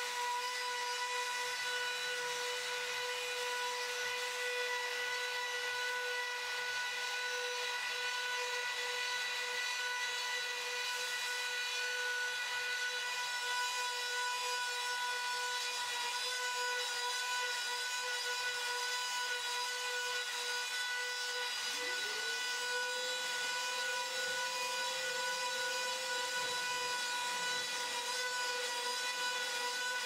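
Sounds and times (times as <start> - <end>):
router spindle high whine: 0.0 - 30.0
hiss of cutting: 16.9 - 30.0.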